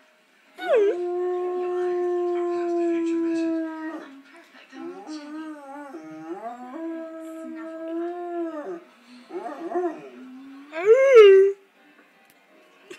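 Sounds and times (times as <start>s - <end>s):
dog howling: 4.8s - 11.6s.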